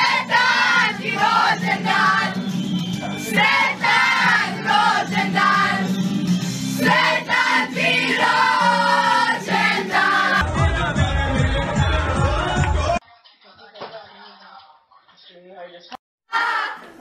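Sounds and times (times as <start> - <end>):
voices singing together: 0.0 - 13.0
music: 0.0 - 15.4.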